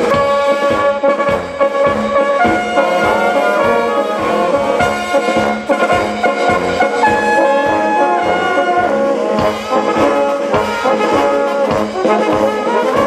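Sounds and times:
brass band playing a march: 0:00.0 - 0:13.0.

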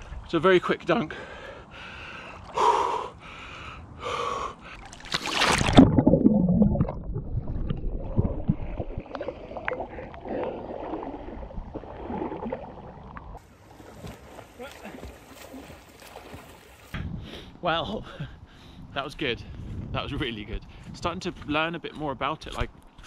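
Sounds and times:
man breathing sharply: 0:01.1 - 0:04.9, 0:17.0 - 0:18.9
man gasping and panting: 0:01.1 - 0:04.9
body splashing into water: 0:04.7 - 0:16.9
water sloshing: 0:04.7 - 0:16.9.

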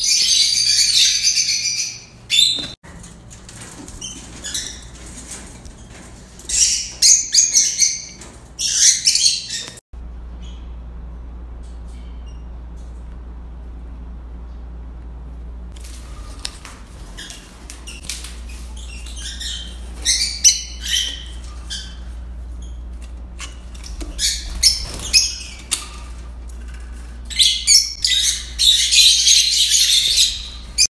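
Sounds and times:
lovebirds chirping and squawking: 0:00.0 - 0:02.8, 0:04.0 - 0:09.8, 0:16.0 - 0:30.9
steady low hum: 0:10.0 - 0:30.9.

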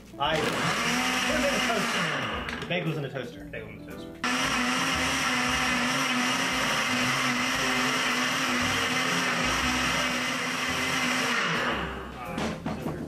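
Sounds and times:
blender crushing ice: 0:00.3 - 0:02.7, 0:04.2 - 0:12.0.

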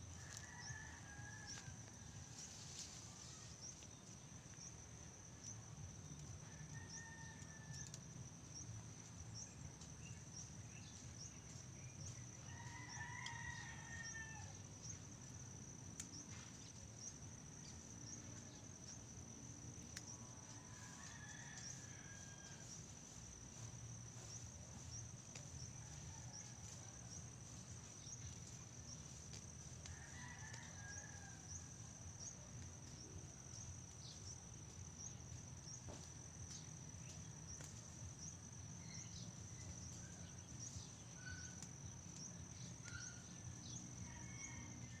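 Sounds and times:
rooster crowing: 0:12.5 - 0:14.6, 0:20.5 - 0:22.8, 0:29.8 - 0:31.8.

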